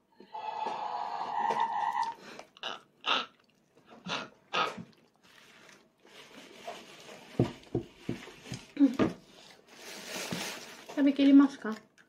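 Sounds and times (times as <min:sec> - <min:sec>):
chewing: 0:02.0 - 0:06.0.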